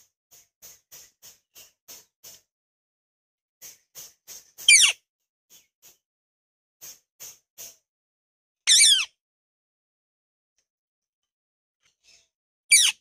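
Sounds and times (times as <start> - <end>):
parakeet shrill calls: 4.7 - 5.0, 8.7 - 9.1, 12.7 - 13.0.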